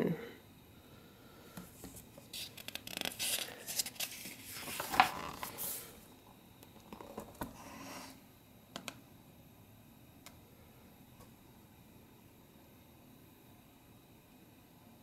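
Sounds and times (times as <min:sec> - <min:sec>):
book pages turning: 0:01.6 - 0:05.8.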